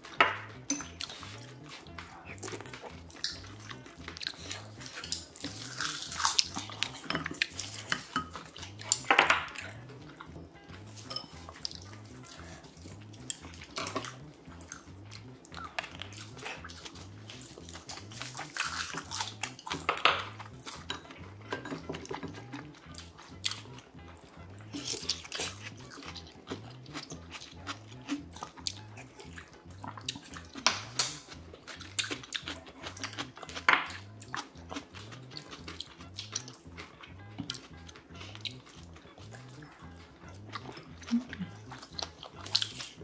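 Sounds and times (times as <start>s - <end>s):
chewing: 0.0s - 43.0s
utensils clicking against bowls: 0.2s - 1.5s, 3.2s - 9.6s, 11.0s - 11.8s, 30.1s - 31.4s
slurping: 0.5s - 43.0s.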